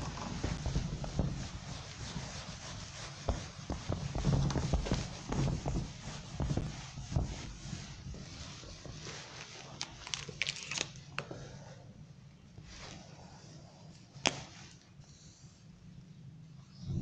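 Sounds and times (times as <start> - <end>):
duster wiping whiteboard: 0.0 - 10.2.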